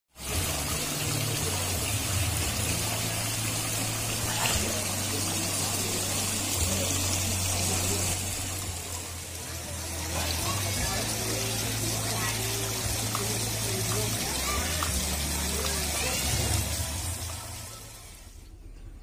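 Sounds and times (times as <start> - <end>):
water splashing over stones: 0.2 - 9.1.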